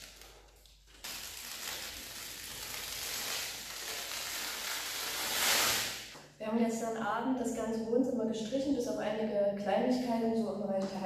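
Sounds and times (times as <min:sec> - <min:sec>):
masking tape peeled off wall: 0:00.0 - 0:06.2.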